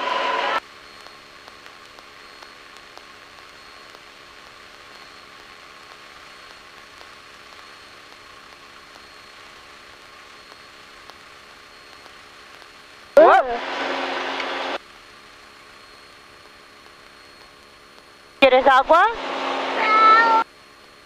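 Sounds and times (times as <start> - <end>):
thin high whine: 7.4 - 21.0.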